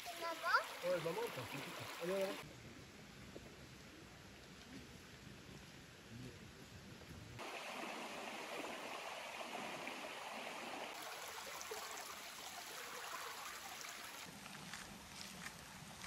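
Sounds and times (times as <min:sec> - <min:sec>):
stream water rushing: 0:00.0 - 0:02.4, 0:07.4 - 0:14.4.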